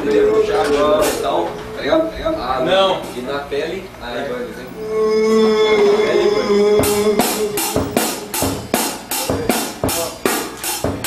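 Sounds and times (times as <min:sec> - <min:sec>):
drum kit beat: 0:00.0 - 0:02.1, 0:06.0 - 0:11.0
person singing a held note: 0:04.8 - 0:08.6.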